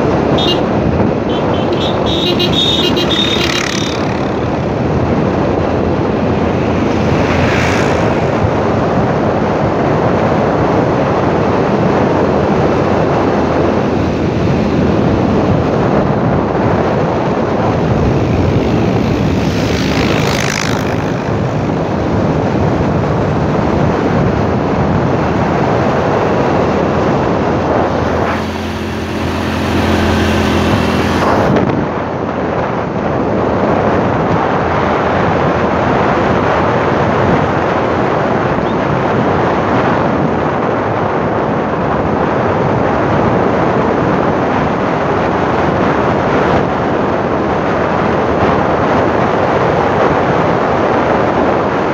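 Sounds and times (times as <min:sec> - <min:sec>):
motorcycle engine running: 0:00.0 - 0:09.4, 0:13.5 - 0:23.3, 0:26.2 - 0:32.0
wind buffeting microphone: 0:00.0 - 0:51.9.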